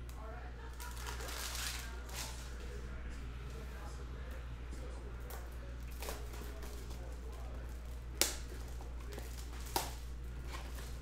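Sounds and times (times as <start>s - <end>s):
cellophane wrap crackling: 0.7s - 2.5s.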